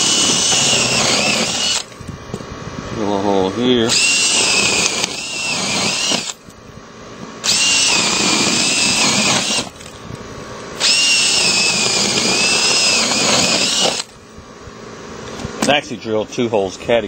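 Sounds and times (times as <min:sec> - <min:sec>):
power drill whining: 0:00.0 - 0:02.0, 0:03.9 - 0:06.4, 0:07.4 - 0:10.0, 0:10.8 - 0:14.2.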